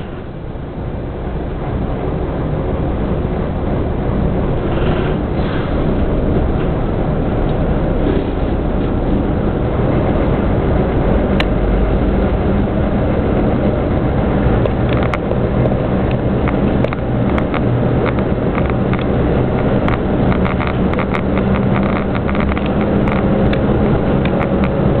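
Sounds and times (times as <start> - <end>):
diesel engine droning: 0.0 - 25.0
running gear clicks and clatter: 14.5 - 25.0.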